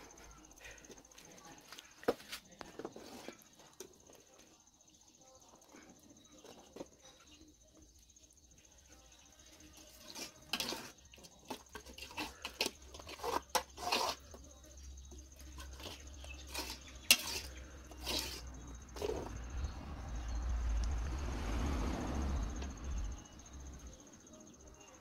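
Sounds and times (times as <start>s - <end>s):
high insect trill: 2.9s - 25.0s
metal ladle scraping a pot: 9.8s - 14.4s, 15.4s - 19.6s.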